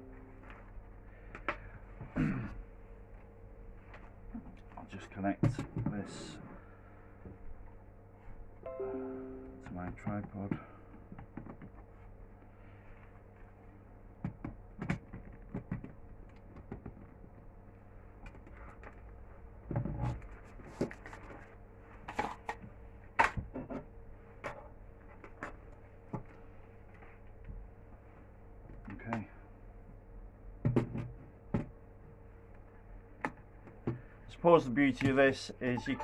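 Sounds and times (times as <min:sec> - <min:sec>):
faint steady hum: 0:00.0 - 0:14.4.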